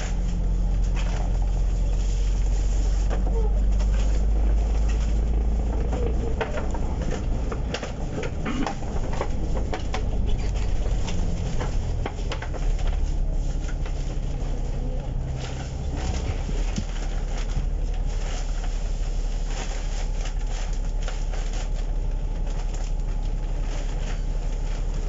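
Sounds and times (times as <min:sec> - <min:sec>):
rattles and clicks of bus fittings: 0:00.0 - 0:18.5
bus engine and road rumble: 0:00.0 - 0:25.0.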